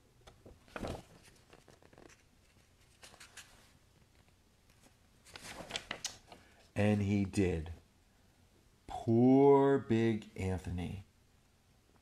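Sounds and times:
paper pages rustling: 0.7s - 6.4s.

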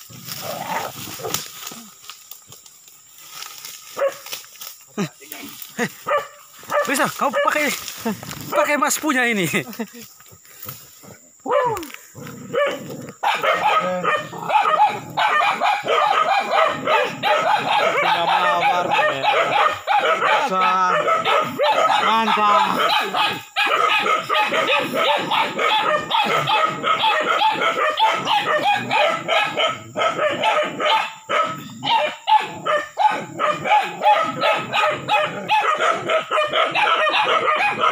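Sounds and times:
dogs barking: 3.9s - 4.4s, 5.8s - 7.8s, 11.5s - 37.9s.

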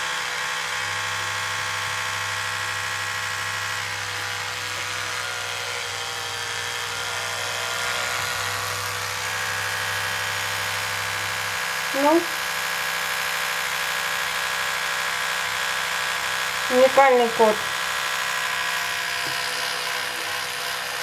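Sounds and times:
electric toothbrush buzzing: 0.0s - 21.0s.

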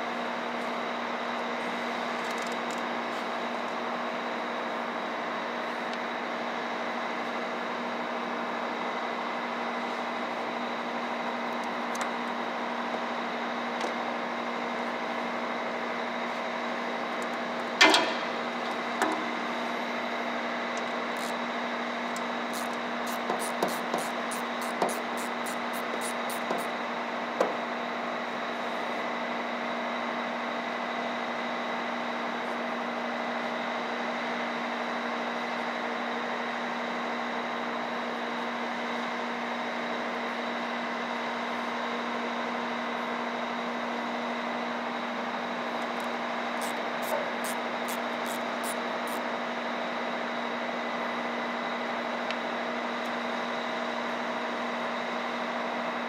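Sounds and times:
metallic knock: 17.8s - 18.4s.

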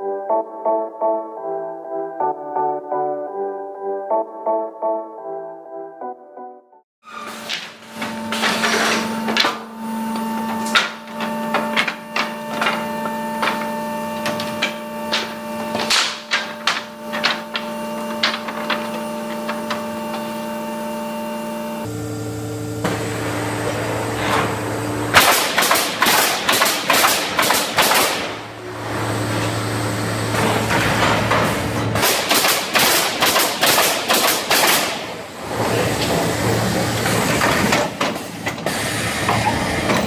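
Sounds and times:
machine hum: 7.1s - 40.0s
wooden boards knocking: 10.3s - 20.4s
rapid pneumatic nailing: 22.8s - 28.5s, 30.3s - 40.0s.

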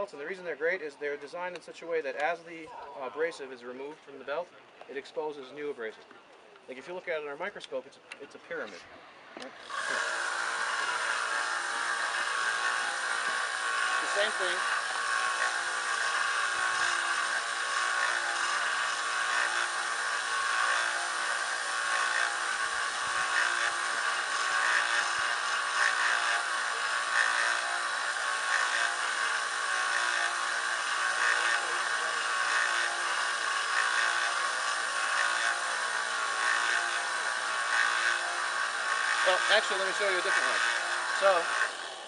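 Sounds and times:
belt grinder motor whir: 9.4s - 42.0s
steel hissing on abrasive belt: 9.6s - 42.0s.

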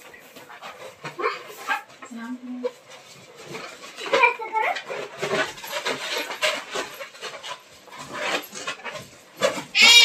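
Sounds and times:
balloons and cloth rustling: 0.0s - 10.0s.

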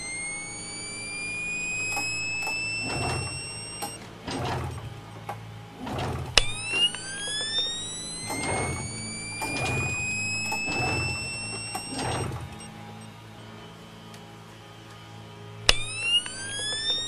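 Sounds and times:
low hum: 0.0s - 17.0s
rising mechanical whine: 0.0s - 17.0s
sharp click: 0.1s - 13.0s.

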